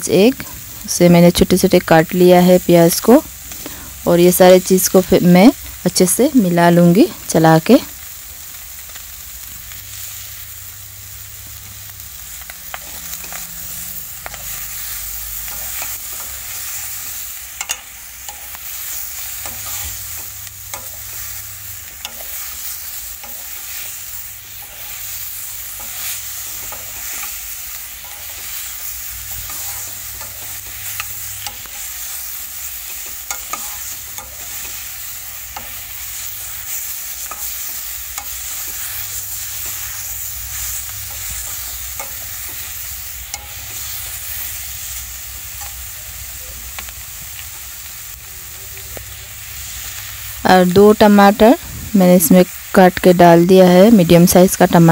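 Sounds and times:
food sizzling in a pan: 0.0s - 54.9s
metal spoon scraping a pan: 12.3s - 44.5s.

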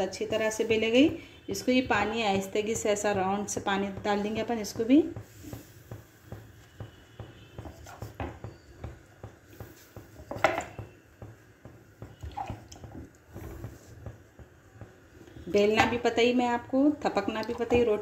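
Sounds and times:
wet hand patting dough: 0.0s - 18.0s.

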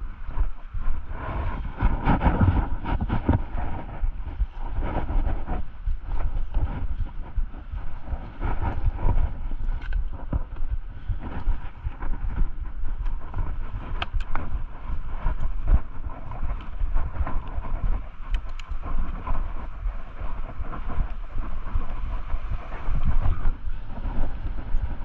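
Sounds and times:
wind buffeting microphone: 0.0s - 25.0s
bike rattling and clicking: 6.1s - 24.8s.

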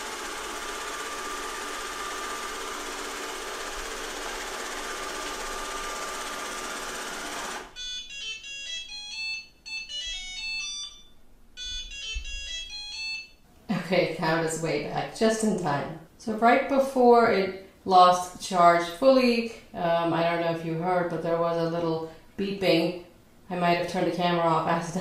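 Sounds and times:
robot vacuum running: 0.0s - 7.8s.

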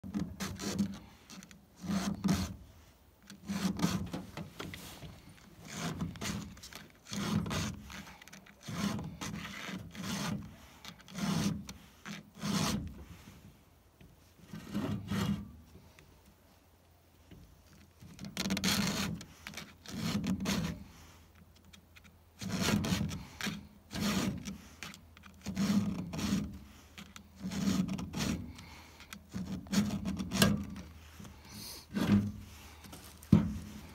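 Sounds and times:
file rasping on saw chain: 1.8s - 2.6s, 3.4s - 4.1s, 7.1s - 12.9s, 22.4s - 28.7s.

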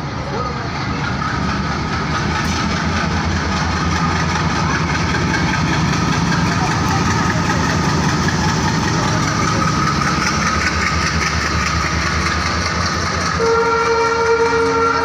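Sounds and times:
diesel locomotive engine rumble: 0.0s - 15.0s
train wheels rattling on rails: 0.0s - 15.0s
train horn: 13.3s - 15.0s.

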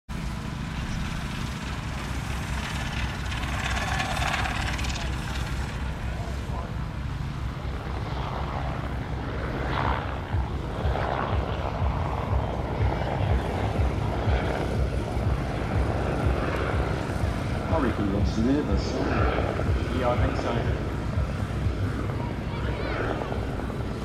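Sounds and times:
car engine rumbling past: 0.1s - 9.0s.

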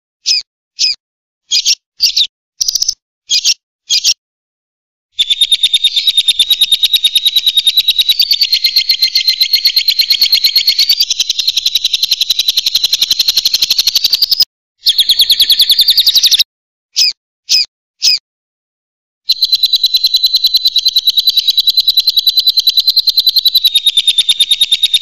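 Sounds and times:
bird rapid chattering trill: 0.2s - 4.2s, 5.2s - 18.2s, 19.3s - 25.0s
bird short sharp calls: 5.2s - 11.4s.

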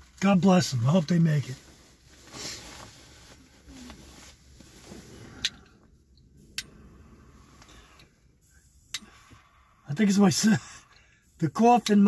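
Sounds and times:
breathy exhale: 6.7s - 9.9s.

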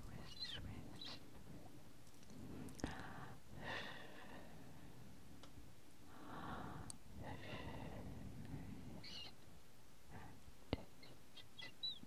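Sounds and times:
breathy whispering: 0.0s - 4.8s, 10.1s - 12.0s.

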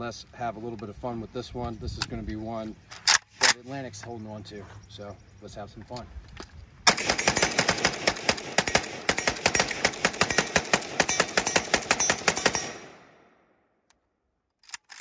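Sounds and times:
rifle shots firing rapidly: 6.9s - 13.1s.

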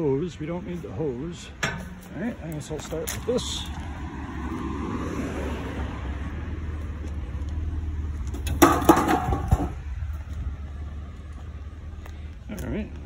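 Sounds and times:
scrap metal clanking: 1.5s - 2.4s, 8.4s - 9.8s
steady low rumble: 6.1s - 13.0s.

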